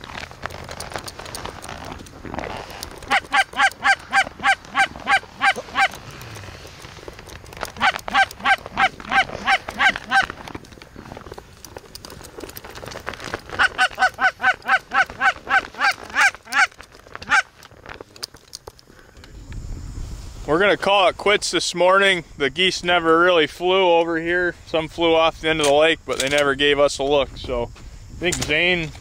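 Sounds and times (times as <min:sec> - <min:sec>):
goose honking rapidly: 0:03.1 - 0:05.9, 0:07.8 - 0:10.3, 0:13.6 - 0:17.5.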